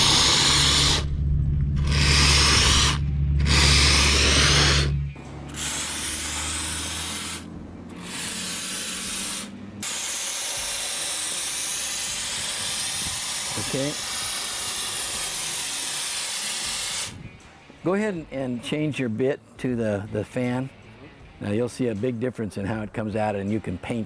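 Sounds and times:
spray foam hissing: 0.0s - 1.1s, 1.8s - 17.2s
low hum: 0.0s - 8.4s.

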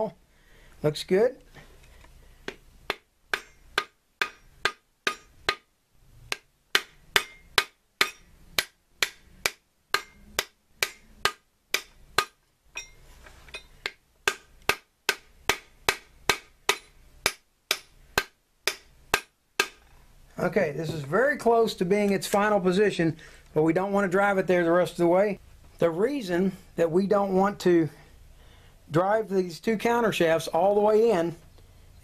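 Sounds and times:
hammer striking metal: 2.9s - 5.7s, 6.3s - 19.8s.

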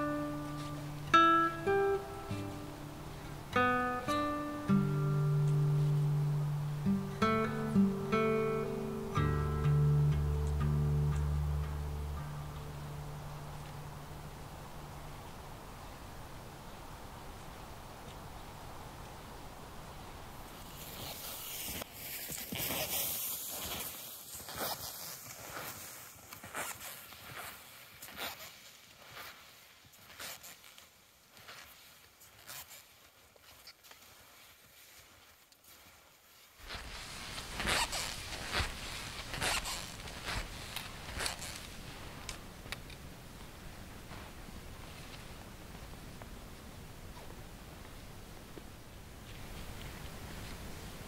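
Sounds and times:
ski poles planting: 0.0s - 14.3s, 20.5s - 46.0s
steady hiss: 0.0s - 33.1s, 34.0s - 51.0s
skis scraping over frozen snow: 20.4s - 42.8s
ski bindings squeaking: 20.6s - 29.4s, 30.0s - 34.8s, 36.6s - 43.0s.

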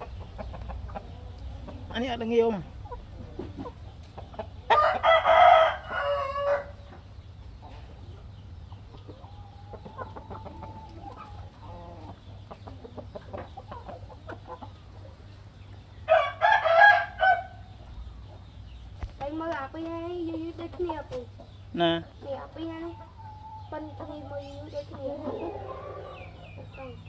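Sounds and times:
rooster crowing: 4.7s - 6.8s, 16.1s - 17.6s.

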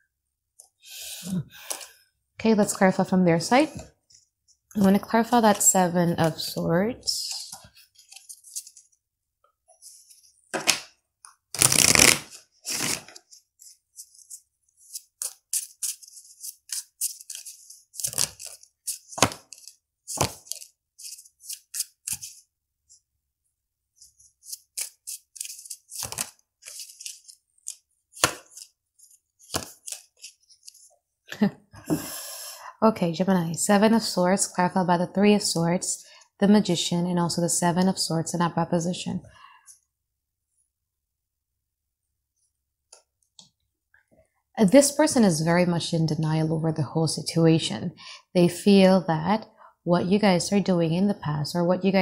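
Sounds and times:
cards being shuffled: 7.3s - 8.9s, 11.5s - 22.4s, 24.2s - 31.0s.

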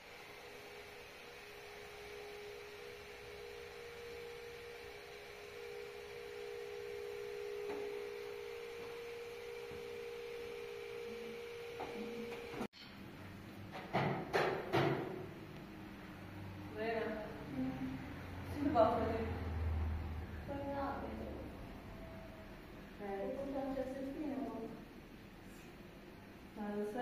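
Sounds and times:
steady humming tone: 0.0s - 13.9s, 15.2s - 27.0s.

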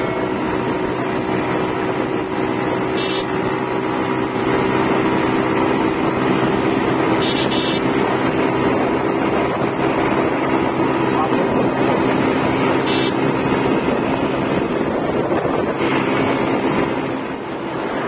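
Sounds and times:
motorcycle engine at high revs: 0.0s - 18.0s
wind rushing: 13.4s - 18.0s.

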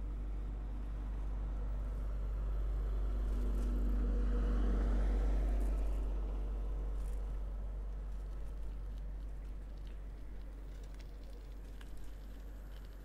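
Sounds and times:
steady low rumble: 0.0s - 13.0s
vehicle passing close by: 2.1s - 7.9s.

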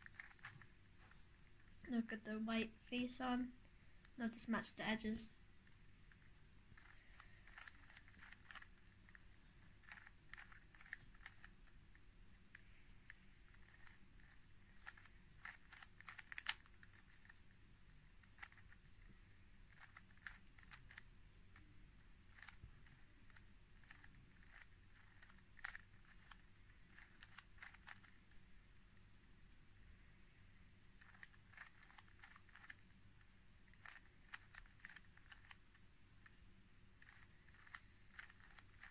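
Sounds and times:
plastic puzzle cube clicking: 0.0s - 0.7s, 6.8s - 17.5s, 18.1s - 28.4s, 31.0s - 33.0s, 33.6s - 36.4s, 37.0s - 38.9s.

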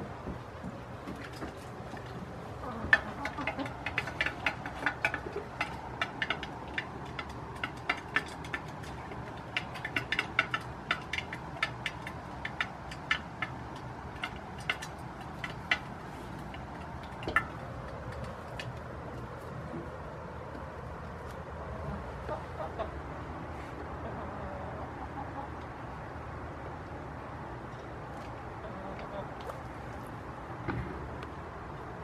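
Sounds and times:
beaks pecking metal bowl: 1.1s - 19.8s.

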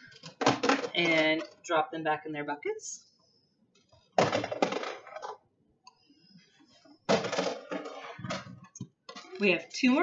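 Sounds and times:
small hard items clattering: 0.0s - 1.7s, 4.2s - 5.4s, 7.1s - 9.5s.

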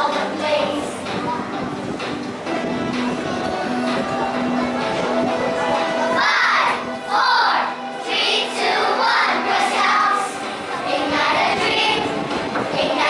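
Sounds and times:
girls singing in unison: 0.0s - 1.3s, 6.2s - 13.0s.

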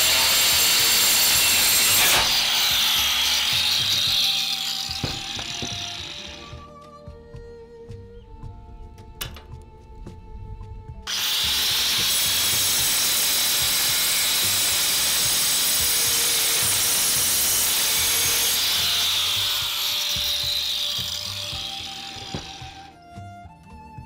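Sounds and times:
angle grinder cutting metal: 0.0s - 6.7s, 11.1s - 23.0s.

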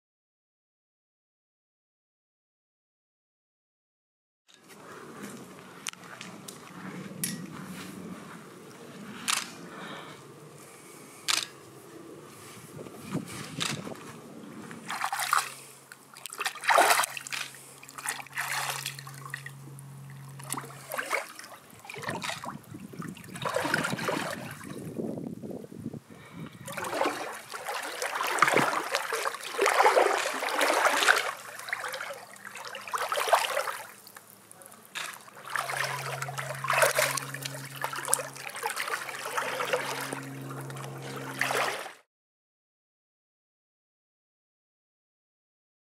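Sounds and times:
low steady hum: 4.5s - 42.0s
pool water splashing: 4.8s - 12.5s, 13.3s - 24.9s, 26.6s - 42.1s.

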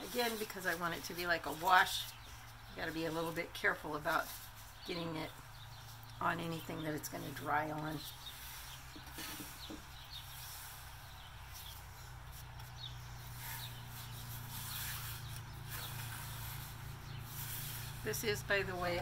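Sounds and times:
paper towel rubbing wood: 0.0s - 4.8s, 10.4s - 19.0s
low steady hum: 0.0s - 19.0s.

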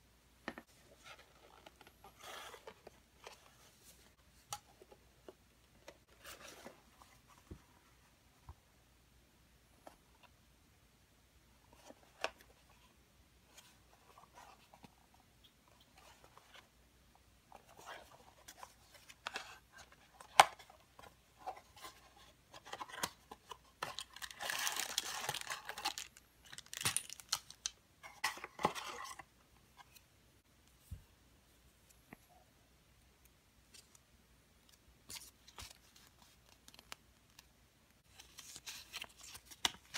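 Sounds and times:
plastic packaging crinkling: 24.0s - 27.7s.

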